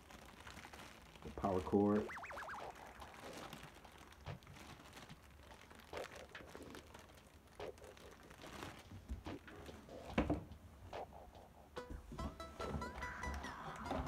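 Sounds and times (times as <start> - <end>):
plastic bag crinkling: 0.0 - 10.5.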